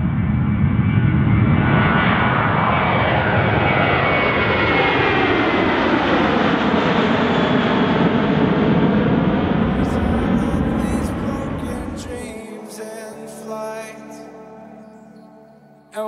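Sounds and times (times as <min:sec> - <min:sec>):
jet engines roaring at takeoff: 0:00.0 - 0:12.4.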